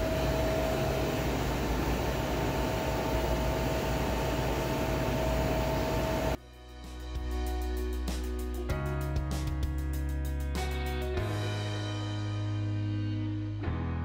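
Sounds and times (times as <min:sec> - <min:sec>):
ventilation fan running: 0:00.0 - 0:06.4.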